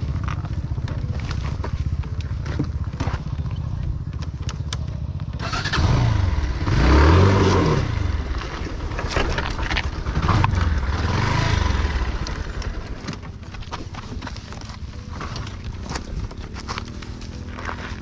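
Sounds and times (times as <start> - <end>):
scattered clicks and knocks: 0.0 - 5.4
motorcycle engine revving: 0.0 - 13.7.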